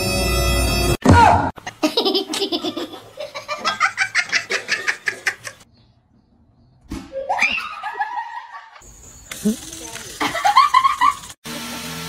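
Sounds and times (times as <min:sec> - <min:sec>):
person laughing: 0:01.6 - 0:05.6, 0:10.2 - 0:11.3.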